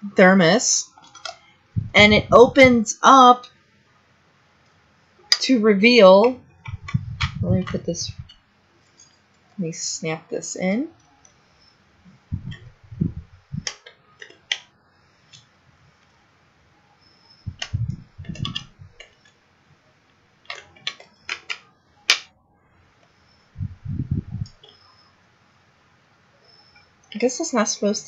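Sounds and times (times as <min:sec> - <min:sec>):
dull bumps: 0:01.8 - 0:02.8
hard plastic clicking: 0:17.5 - 0:19.2.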